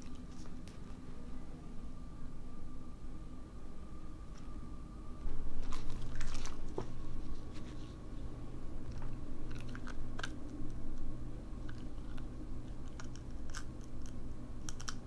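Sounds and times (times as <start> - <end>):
dog crunching dried fish: 0.0 - 1.0, 5.6 - 6.9, 8.8 - 15.0.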